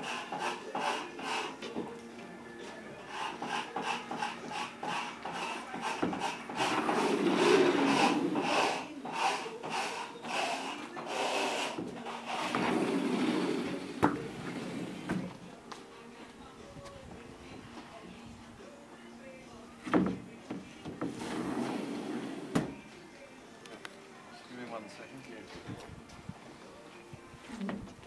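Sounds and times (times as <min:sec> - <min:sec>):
glass panels scraping on track: 0:03.2 - 0:09.5, 0:10.6 - 0:15.3, 0:21.0 - 0:22.7.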